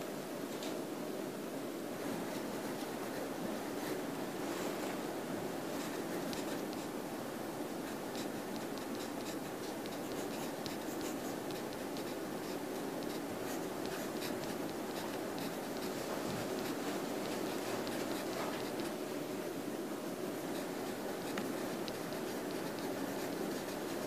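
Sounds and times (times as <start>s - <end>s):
pencil scratching on paper: 5.8s - 7.0s, 7.7s - 19.0s, 20.4s - 24.0s.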